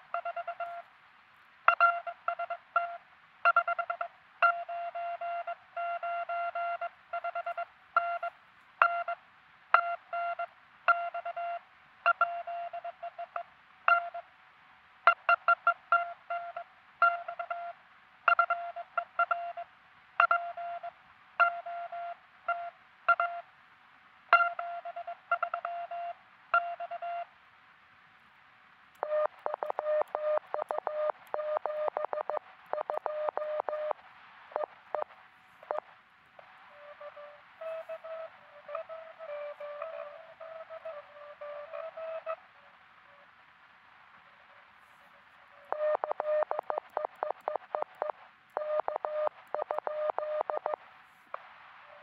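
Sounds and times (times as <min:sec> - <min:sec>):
fast morse signal with hiss: 0:00.0 - 0:00.9, 0:01.7 - 0:09.2, 0:09.8 - 0:14.3, 0:15.1 - 0:23.5, 0:24.3 - 0:27.3, 0:29.0 - 0:52.0
morse code sidetone beeping: 0:00.1 - 0:00.8, 0:01.7 - 0:09.2, 0:09.8 - 0:14.2, 0:20.2 - 0:23.4, 0:24.4 - 0:27.3, 0:29.0 - 0:34.0, 0:34.6 - 0:35.8, 0:36.7 - 0:42.4, 0:45.7 - 0:50.8.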